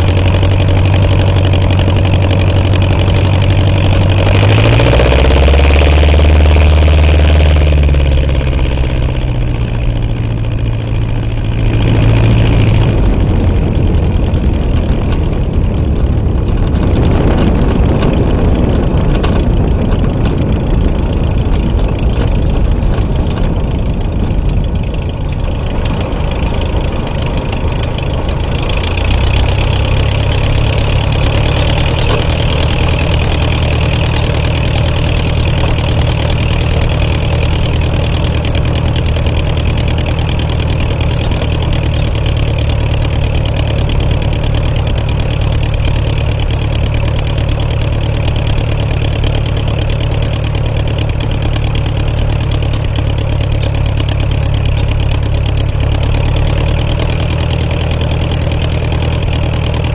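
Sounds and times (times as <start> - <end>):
light aircraft engine running: 0.0 - 59.9
wind rushing: 11.5 - 27.8.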